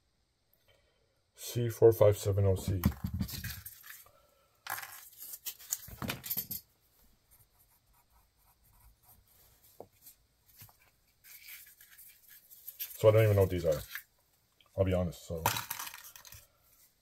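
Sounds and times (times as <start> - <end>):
pencil scratching on paper: 7.3 - 9.5.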